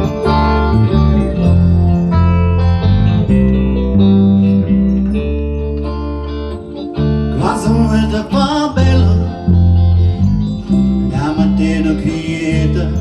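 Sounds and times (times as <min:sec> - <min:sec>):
acoustic guitar: 0:00.0 - 0:13.0
electric bass guitar: 0:00.0 - 0:13.0
keyboard: 0:00.0 - 0:13.0
man singing: 0:07.3 - 0:09.9, 0:11.0 - 0:13.0.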